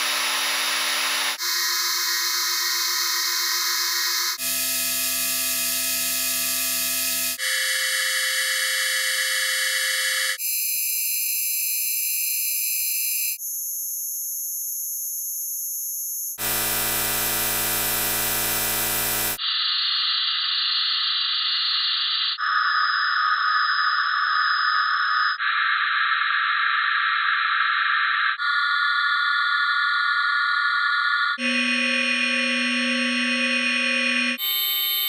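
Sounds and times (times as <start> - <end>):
synthesized sine tone chords: 0.0 - 10.4, 16.4 - 19.4, 28.3 - 35.0.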